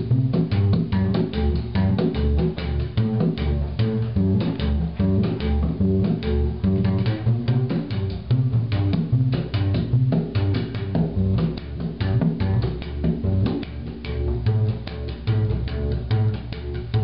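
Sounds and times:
plucked low bass notes: 0.0s - 17.0s
quicker plucked string notes: 0.0s - 17.0s.

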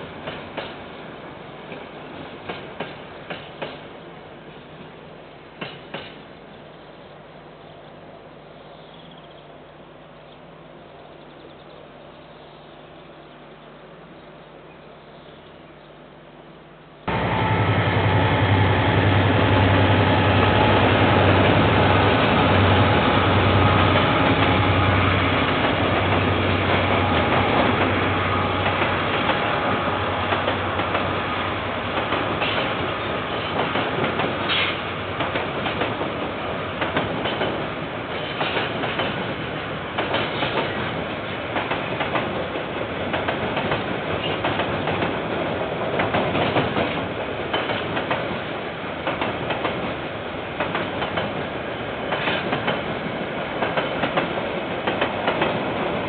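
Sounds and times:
diesel locomotive engine drone: 0.0s - 56.0s
train wheels clattering on track: 0.1s - 1.0s, 1.6s - 4.0s, 4.8s - 6.4s, 17.1s - 56.0s.

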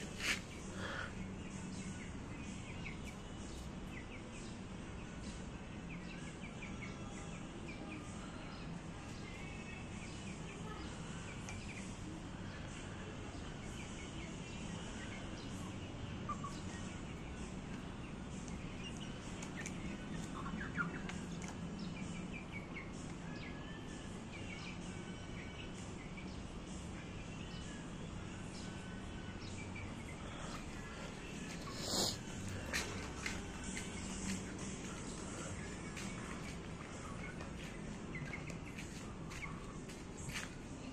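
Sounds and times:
chickens chirping and clucking: 0.0s - 40.9s
low background hum: 0.0s - 40.9s.

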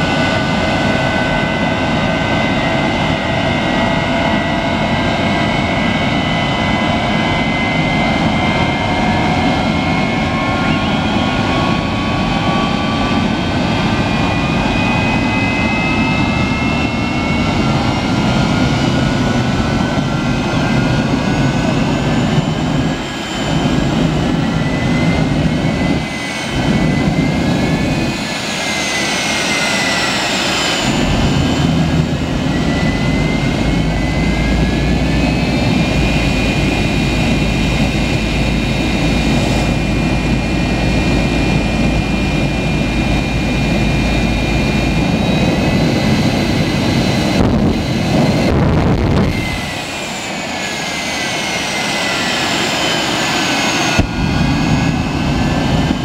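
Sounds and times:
jet engine whine: 0.0s - 56.0s
heavy rumble: 30.6s - 50.3s, 54.0s - 56.0s.

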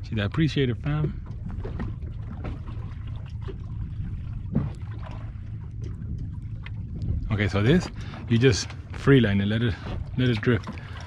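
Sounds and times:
steady low rumble: 0.0s - 11.0s
water lapping against boat: 0.0s - 11.0s.

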